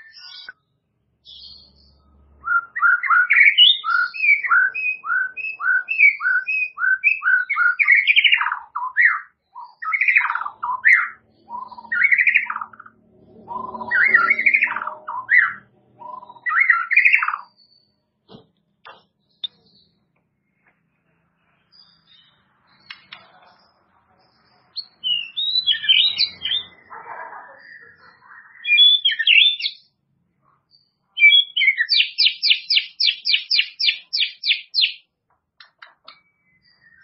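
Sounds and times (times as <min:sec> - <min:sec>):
bird singing whistled notes: 0:00.0 - 0:18.0, 0:24.8 - 0:26.9, 0:27.6 - 0:29.9, 0:30.8 - 0:35.0, 0:35.8 - 0:37.0.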